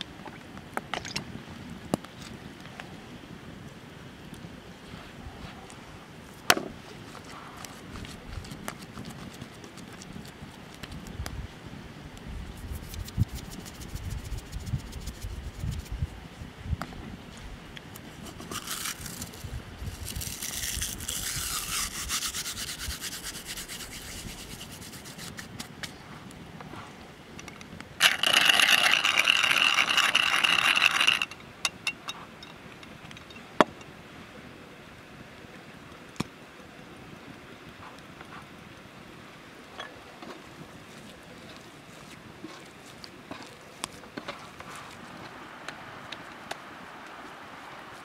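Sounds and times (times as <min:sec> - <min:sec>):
hand rubbing seasoning: 0:12.6 - 0:16.0, 0:18.1 - 0:25.7, 0:28.0 - 0:31.4
rasping grind: 0:20.0 - 0:25.5, 0:28.0 - 0:31.4.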